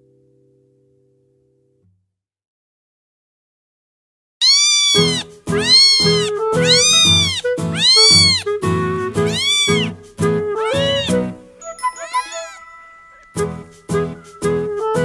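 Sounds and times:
cat meowing: 4.4s - 8.5s, 9.2s - 10.0s, 10.6s - 11.3s, 12.0s - 13.3s.

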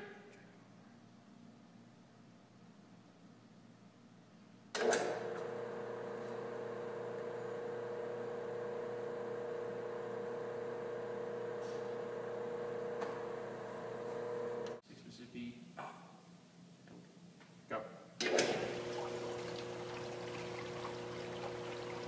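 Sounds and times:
electrical motor hum: 5.1s - 14.8s, 18.3s - 22.0s.

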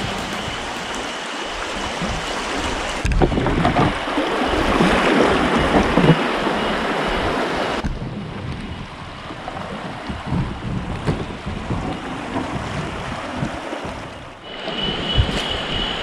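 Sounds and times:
river water rushing and splashing: 0.0s - 7.8s
wind buffeting microphone: 0.0s - 16.0s.

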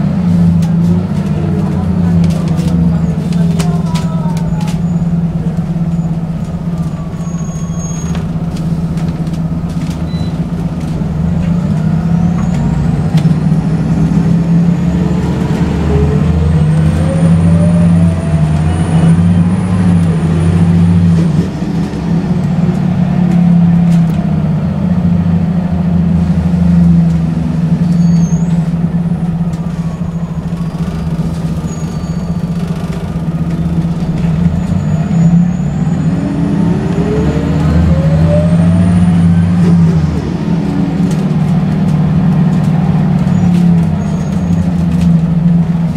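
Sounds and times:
bus engine drone: 0.0s - 45.9s
body clicks and rattles: 0.5s - 7.1s, 8.1s - 13.4s, 28.7s - 34.8s.

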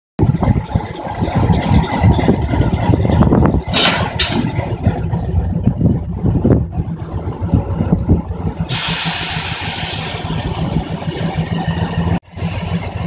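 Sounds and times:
diesel locomotive idling: 0.2s - 13.0s
air release hisses: 8.7s - 10.3s, 12.3s - 13.0s.

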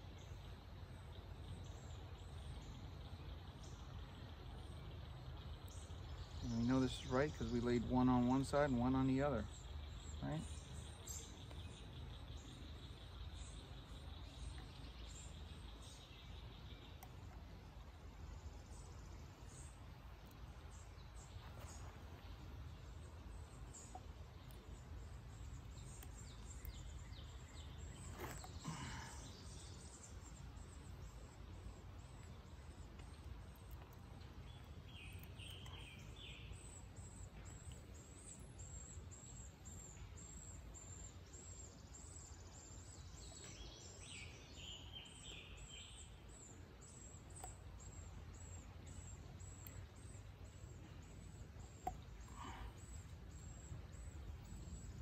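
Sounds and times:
birds chirping: 0.0s - 55.0s
faint clicks: 47.2s - 47.6s.

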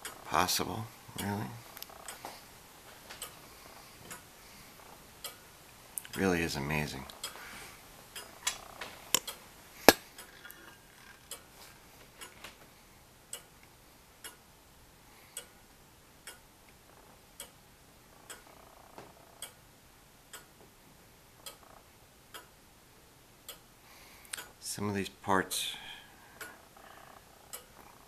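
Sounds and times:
clock ticking: 14.2s - 14.5s, 16.2s - 16.5s, 17.4s - 17.6s, 18.2s - 18.6s, 19.3s - 19.6s, 20.3s - 20.6s, 22.3s - 22.6s, 27.5s - 27.8s.

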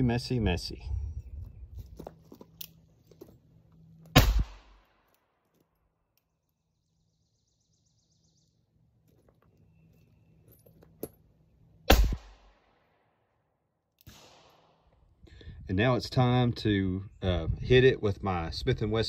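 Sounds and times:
revolver shots with ringing tail: 4.2s - 4.8s.

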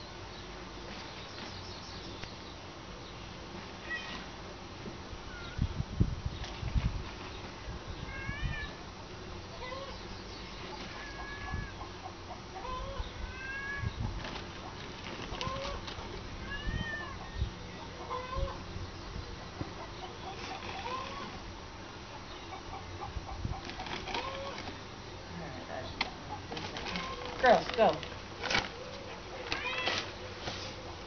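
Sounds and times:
farmyard background: 0.0s - 31.0s.

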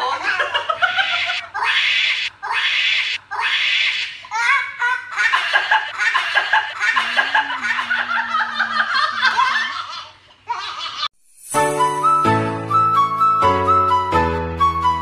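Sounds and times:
man and woman laughing: 0.0s - 11.1s.

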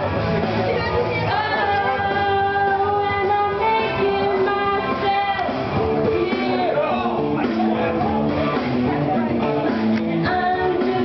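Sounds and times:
rock backing track: 0.0s - 11.0s
woman singing into a microphone: 0.7s - 6.9s, 10.2s - 11.0s.

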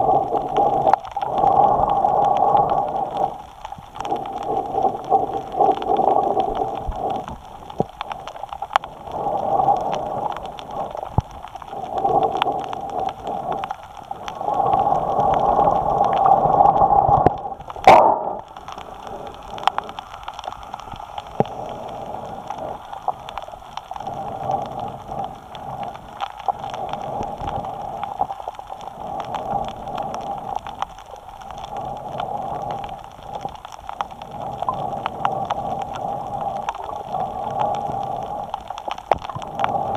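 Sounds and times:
breathing through snorkel: 11.7s - 17.2s.

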